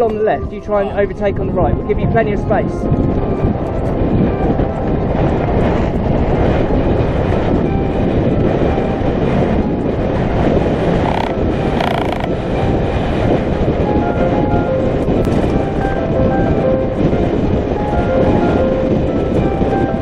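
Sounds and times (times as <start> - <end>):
wind on microphone: 0.0 - 20.0
bike rattling over bumps: 9.2 - 13.8
bike tyre noise: 10.9 - 12.4.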